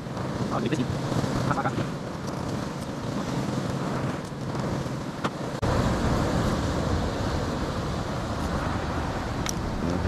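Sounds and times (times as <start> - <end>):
sea surf rushing: 0.0 - 10.0
wind on microphone: 0.0 - 10.0.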